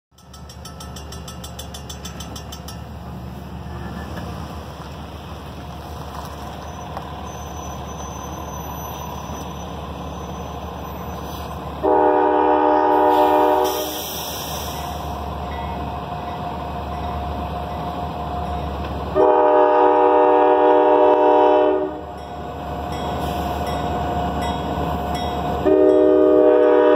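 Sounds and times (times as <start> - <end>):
low rumble of train: 0.1 - 26.9
locomotive air horn blasts: 11.8 - 14.9, 19.1 - 22.1, 25.6 - 26.9.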